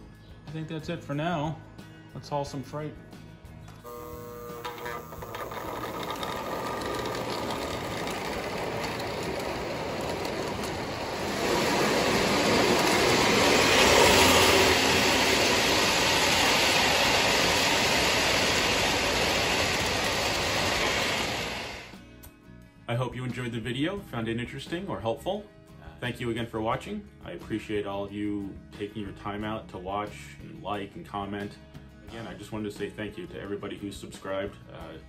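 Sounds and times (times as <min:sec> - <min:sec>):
model train rumbling on track: 0:05.0 - 0:21.9.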